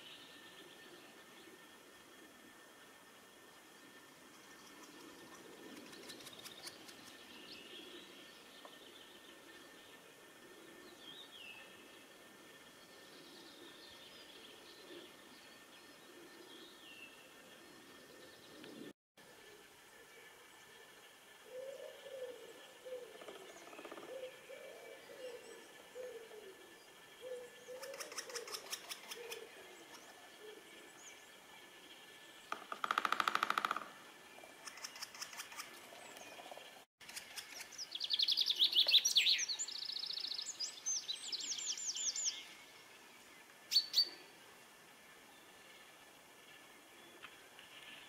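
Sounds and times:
woodpecker drumming: 22.8 - 24.7, 27.2 - 30.2, 32.4 - 37.8
woodpecker sharp calls: 27.2 - 30.1, 32.5 - 36.6.

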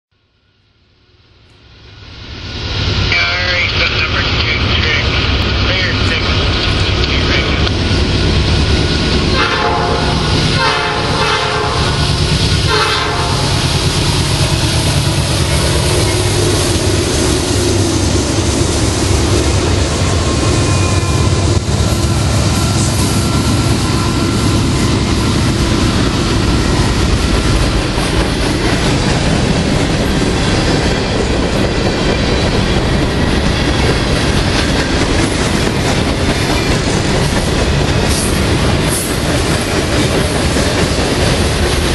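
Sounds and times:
locomotive engine rumble: 2.9 - 41.9
train wheels clattering on rails: 6.4 - 41.9
train air horn: 9.3 - 12.1, 12.7 - 13.6.

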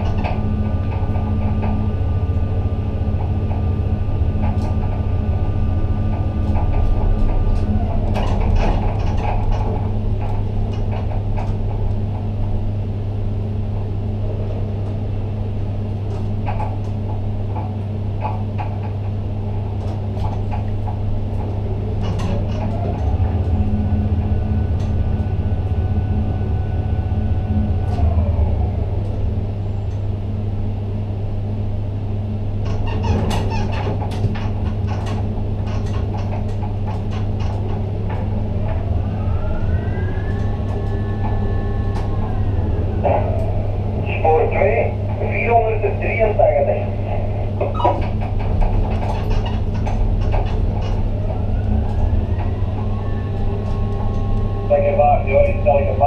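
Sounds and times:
low machinery hum: 0.0 - 56.0
electric hoist whining: 34.5 - 56.0.

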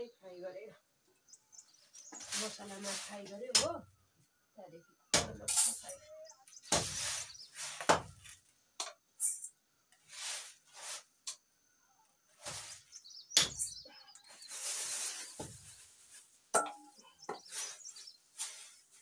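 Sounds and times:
rice rustling on bamboo tray: 1.9 - 3.4, 10.0 - 11.2, 14.3 - 16.5, 17.3 - 19.0.

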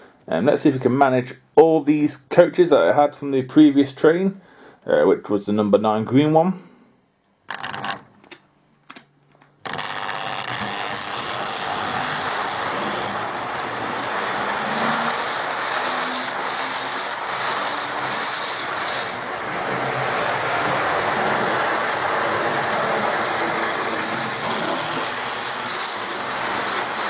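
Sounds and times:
model locomotive motor whirring: 9.7 - 27.0
train wheels rattling on track: 11.5 - 27.0.

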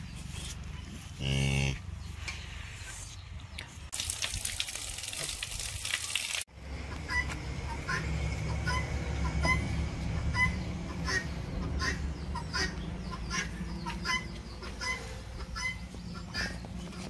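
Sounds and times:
cow mooing: 1.2 - 1.8.

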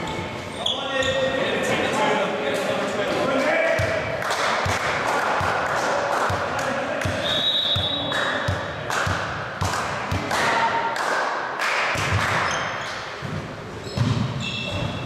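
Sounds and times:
volleyballs thudding on floor: 7.8 - 10.5, 11.9 - 12.5
short high squeaks: 13.8 - 15.0.

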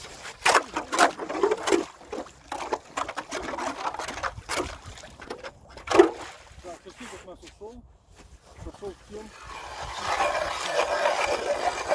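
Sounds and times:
ice auger scraping through ice: 0.0 - 5.2, 8.8 - 11.9.

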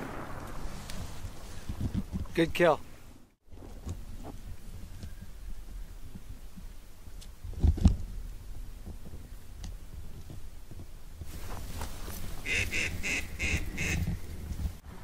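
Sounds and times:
low burst: 0.0 - 2.1
wind on camera microphone: 0.0 - 2.5, 7.4 - 15.0.

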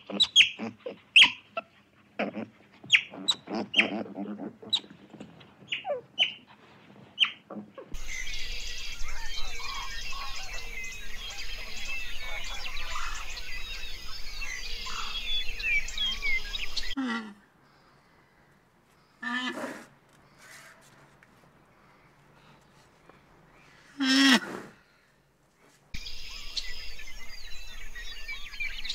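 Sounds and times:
birds chirping chorus: 7.2 - 17.0, 26.0 - 28.9.

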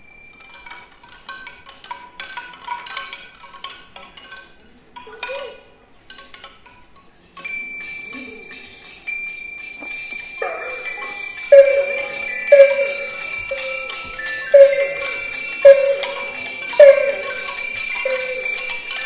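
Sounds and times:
jingling bells and chimes: 10.5 - 19.0
held high ringing note: 11.5 - 19.0
struck bell notes: 11.5 - 19.0.

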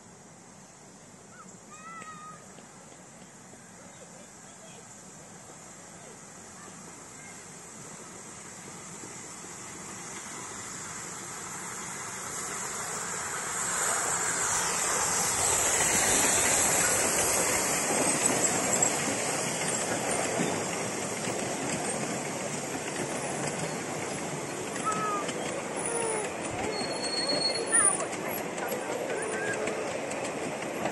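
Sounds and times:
miniature steam train passing: 0.0 - 30.9.

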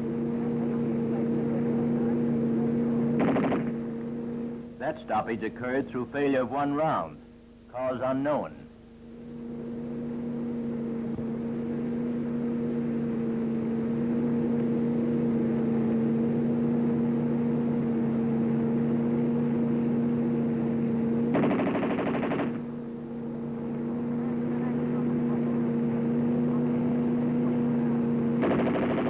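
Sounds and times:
droning hum: 0.0 - 29.0
submachine gun burst: 3.2 - 3.8, 21.3 - 22.7, 28.4 - 29.0.

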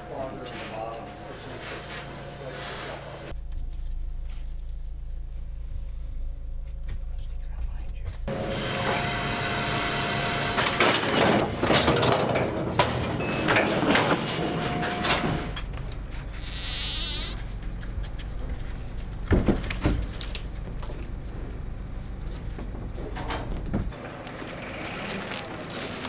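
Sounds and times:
steel gates clanking and rattling: 10.7 - 15.7.

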